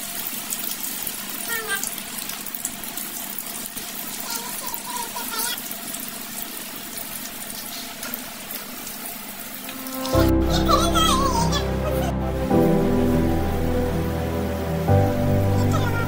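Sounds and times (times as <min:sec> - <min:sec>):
fries sizzling in hot oil: 0:00.0 - 0:16.0.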